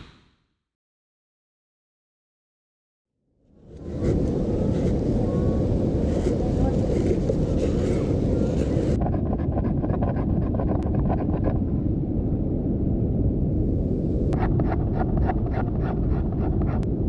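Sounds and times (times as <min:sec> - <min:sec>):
wind rumble on microphone: 0:03.4 - 0:17.0.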